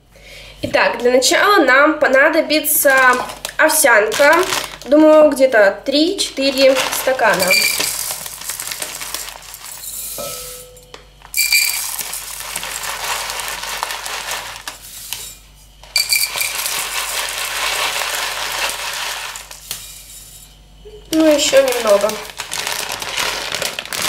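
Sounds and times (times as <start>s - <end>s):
rolled oats pouring into a cup: 6.5s - 10.1s, 11.4s - 15.2s, 16.0s - 19.8s.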